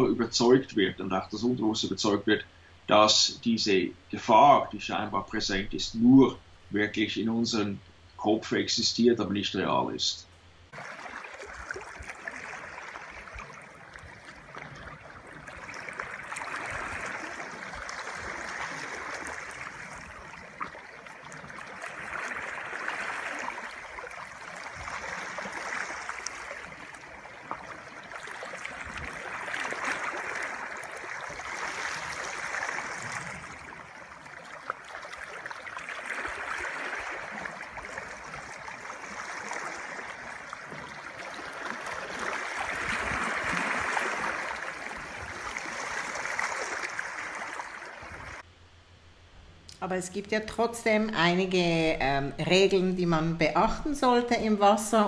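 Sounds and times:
sea water lapping and splashing: 10.7 - 48.5.

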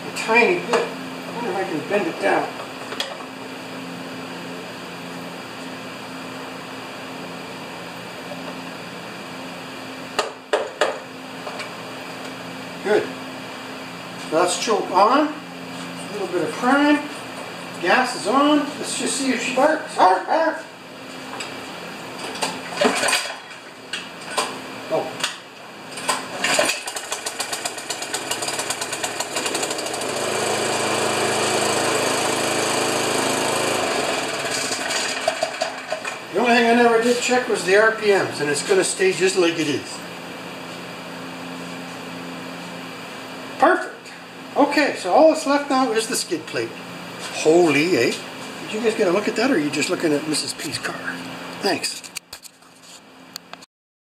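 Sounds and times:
snowblower engine starting and running: 22.1 - 42.4.

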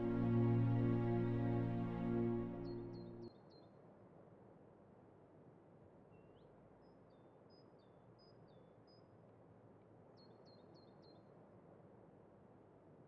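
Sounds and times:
low steady hum: 0.0 - 3.2.

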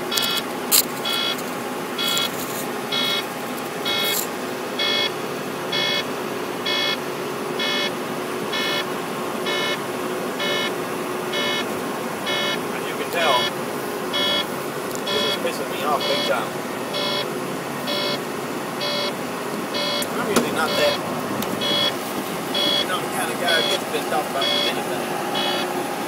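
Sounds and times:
truck road noise: 0.0 - 26.0
warning beeper short beeps: 1.0 - 1.4, 2.0 - 4.2, 4.8 - 5.1, 5.7 - 6.1, 6.7 - 7.0, 7.6 - 7.9, 8.5 - 8.9, 9.5 - 9.8, 10.4 - 10.7, 11.3 - 11.7, 12.3 - 12.6, 13.2 - 17.3, 17.9 - 18.2, 18.8 - 19.2, 19.8 - 21.0, 21.6 - 25.7.

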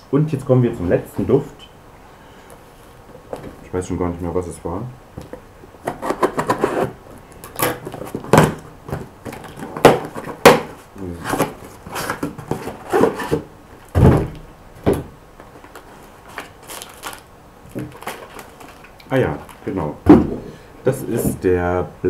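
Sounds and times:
cardboard rustling and crinkling: 5.2 - 21.4
box knocks and thumps: 7.6 - 15.2, 19.8 - 21.4.

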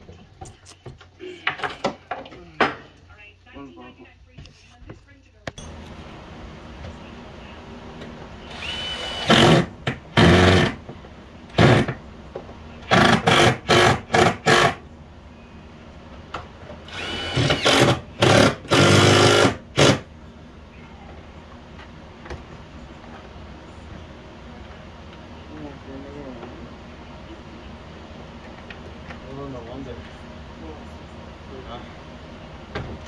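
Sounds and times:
cordless power driver bursts: 16.9 - 20.0.

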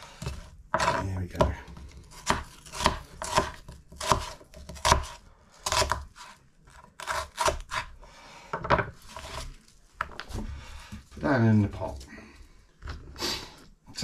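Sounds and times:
knife chopping on wooden board: 0.2 - 7.9.

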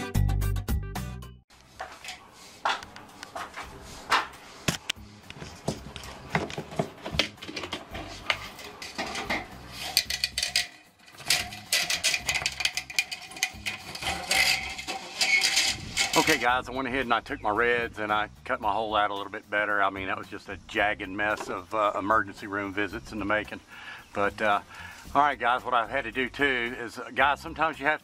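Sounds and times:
aluminium duct crinkling: 1.6 - 16.7
metallic clicks and rattles: 5.9 - 16.4.

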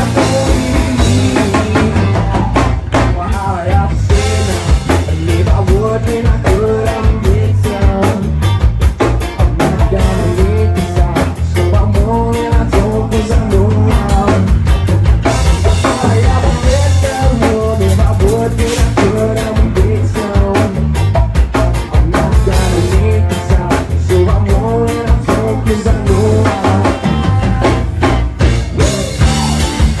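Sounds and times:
live band playing loud: 0.0 - 30.0.

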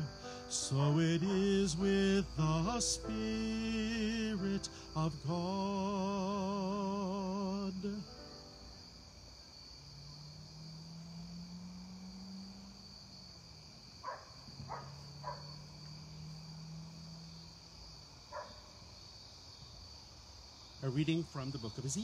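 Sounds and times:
low steady drone: 0.0 - 8.3
crickets chirping: 0.0 - 22.0.

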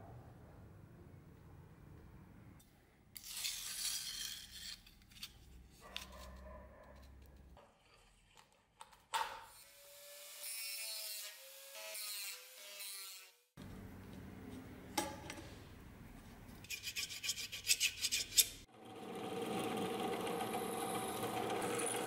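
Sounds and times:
rotary tool grinding whine: 18.7 - 22.0.

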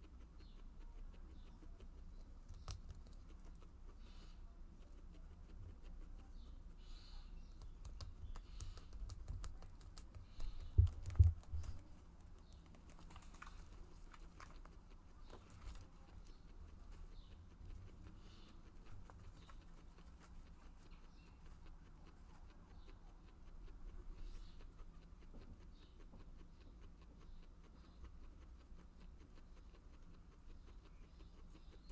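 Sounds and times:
guinea pigs chewing leaves: 0.0 - 31.9.

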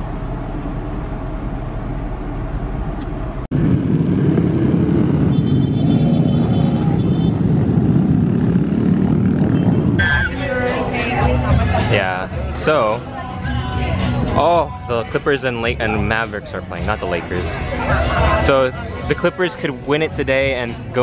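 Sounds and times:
traffic hum: 0.0 - 21.0
motorcycles riding past: 3.5 - 12.6.

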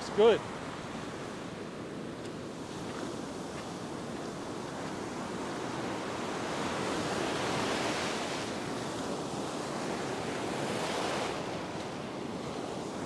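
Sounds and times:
ocean surf breaking: 0.0 - 1.3.

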